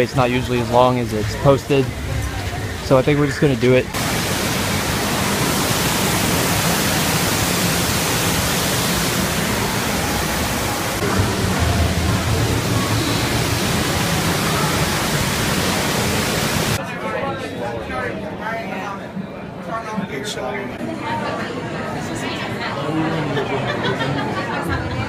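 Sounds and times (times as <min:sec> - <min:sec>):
loud steady rushing noise: 0:00.0 - 0:16.8.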